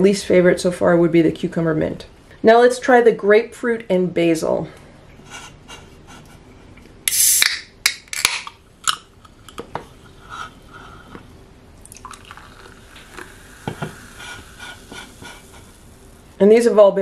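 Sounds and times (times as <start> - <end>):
can popping open: 7.1 - 9.8
can tab clicks: 7.1 - 9.9.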